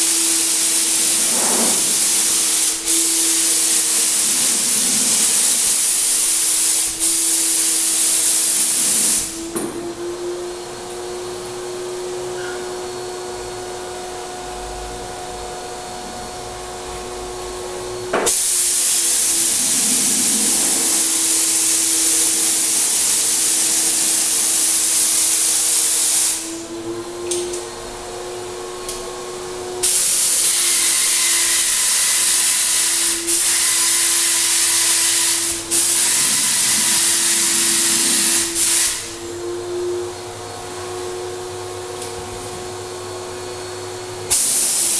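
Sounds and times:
spray gun hissing: 0:00.0 - 0:09.4, 0:18.2 - 0:26.6, 0:29.8 - 0:39.2, 0:44.3 - 0:44.9
turbine sprayer humming: 0:13.5 - 0:24.4.

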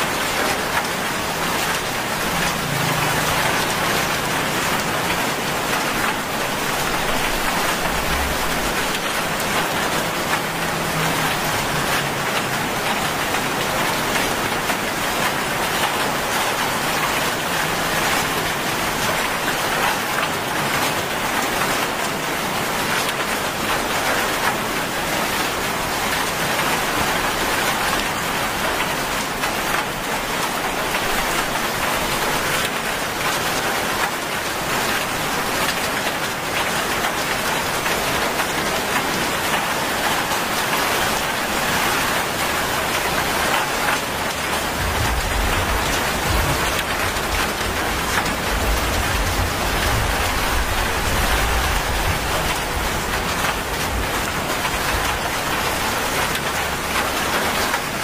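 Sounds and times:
heavy rain on paved road: 0:00.0 - 0:58.0.

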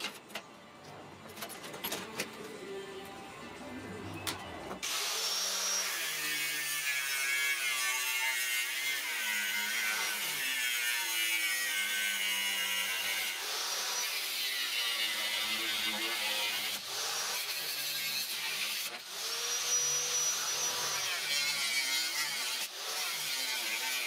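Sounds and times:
angle grinder cutting steel: 0:04.8 - 0:24.0.

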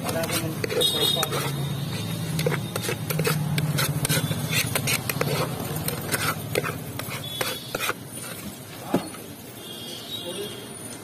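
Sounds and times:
knife scraping inside metal can: 0:00.0 - 0:08.6.

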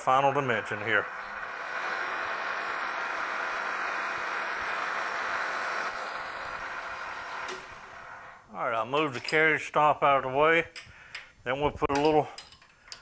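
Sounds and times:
lathe tool cutting hiss: 0:00.0 - 0:08.5
high machine whine: 0:00.0 - 0:08.6.

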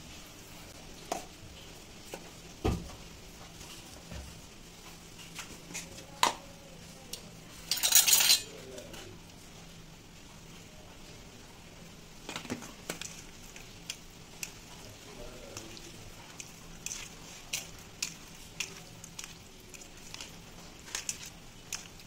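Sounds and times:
utensils clinking on metal plate: 0:07.6 - 0:08.6.

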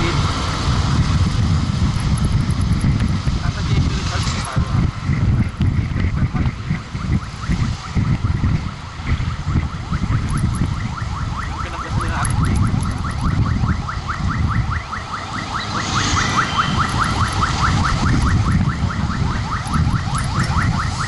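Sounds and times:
wind rumbling on microphone: 0:00.0 - 0:21.0.

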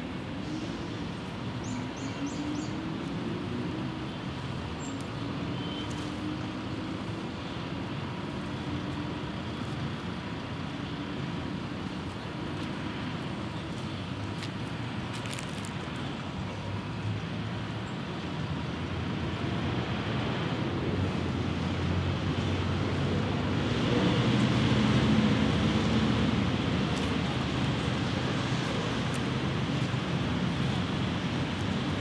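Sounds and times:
city traffic rumble: 0:00.0 - 0:32.0
vehicle engine droning: 0:18.7 - 0:32.0.

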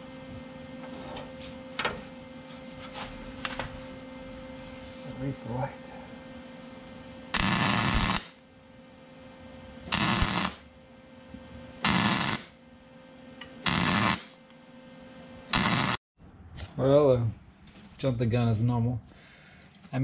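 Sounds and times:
welder crackling and hissing: 0:07.3 - 0:08.4, 0:09.9 - 0:10.7, 0:11.8 - 0:12.6, 0:13.6 - 0:14.4, 0:15.5 - 0:16.0.

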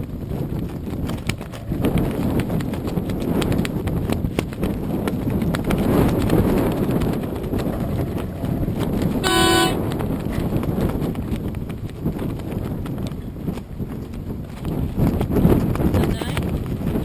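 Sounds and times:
wind buffeting microphone: 0:00.0 - 0:17.0
short horn toot: 0:09.2 - 0:09.8.

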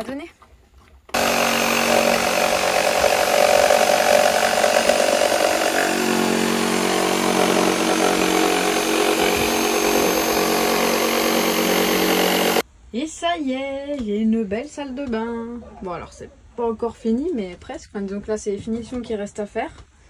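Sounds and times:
electric jigsaw cutting wood: 0:01.1 - 0:12.6.

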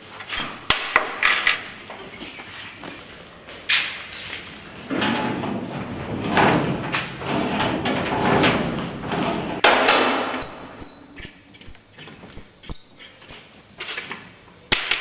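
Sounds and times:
metal rods clinking: 0:00.3 - 0:02.8, 0:09.6 - 0:13.5.

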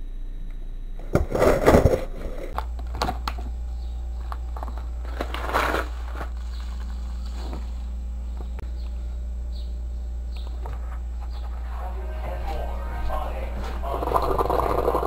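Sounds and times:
low steady hum: 0:00.0 - 0:15.0
paper bag crinkling: 0:04.5 - 0:07.7, 0:13.6 - 0:15.0.

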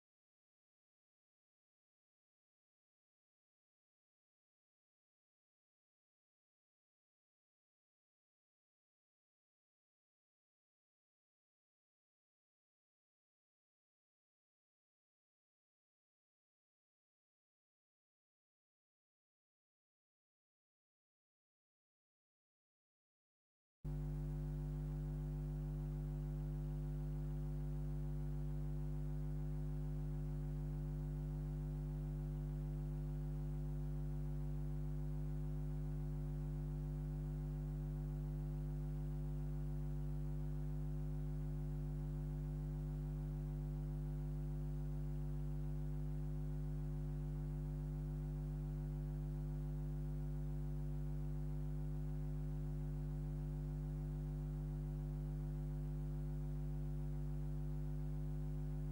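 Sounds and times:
low mains hum: 0:23.9 - 0:58.9.

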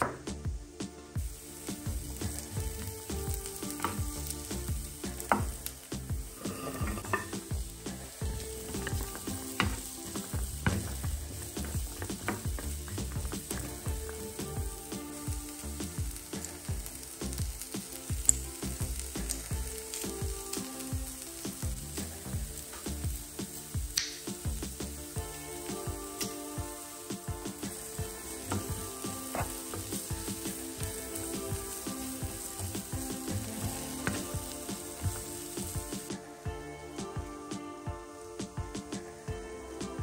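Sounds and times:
vegetables sizzling in oil: 0:00.0 - 0:40.0
wooden spatula scraping a pan: 0:06.2 - 0:14.3, 0:27.2 - 0:36.1.

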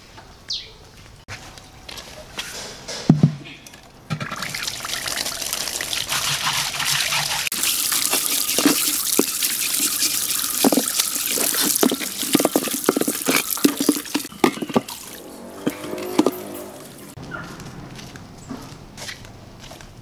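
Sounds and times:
tap water splashing over ceramic jar: 0:04.1 - 0:17.1.

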